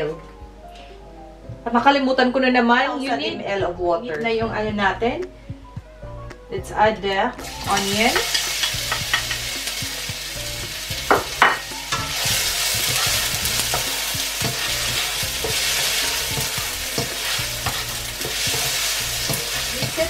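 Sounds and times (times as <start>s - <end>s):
onion sizzling in oil: 7.4s - 20.0s
spatula tapping a pan: 7.8s - 20.0s
spatula scraping a pan: 11.4s - 20.0s.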